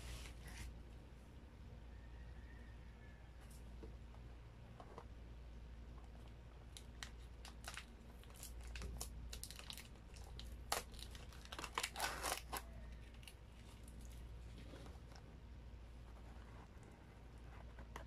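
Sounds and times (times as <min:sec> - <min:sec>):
plastic sachets crinkling: 0:06.6 - 0:14.2.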